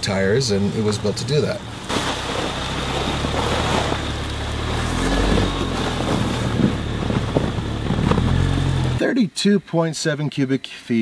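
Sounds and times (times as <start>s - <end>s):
car engine humming: 0.0s - 9.0s
tyres crunching over ground: 0.0s - 9.0s
wind on microphone: 2.8s - 9.0s.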